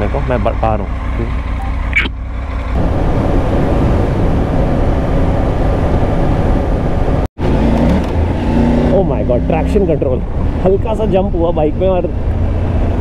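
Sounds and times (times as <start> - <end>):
motorcycle engine: 0.0 - 13.0
road noise: 0.0 - 13.0
wind rush over microphone: 2.8 - 8.6.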